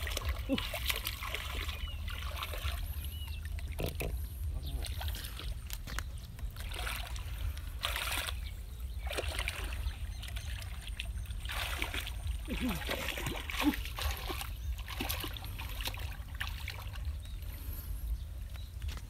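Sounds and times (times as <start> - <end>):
hands splashing in muddy water: 9.0 - 17.1.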